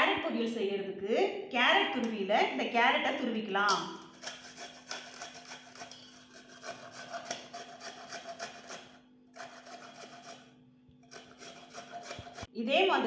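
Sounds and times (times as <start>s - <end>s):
carrot grating on steel grater: 4.0s - 12.5s.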